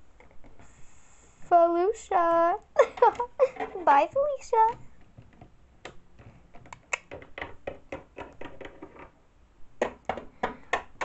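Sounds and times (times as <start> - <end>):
plastic toy tapping: 6.6 - 9.1, 9.8 - 11.0.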